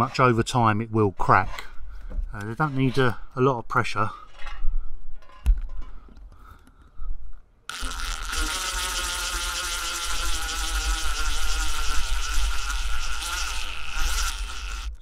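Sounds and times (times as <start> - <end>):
power drill driving screw into metal: 7.7 - 15.0.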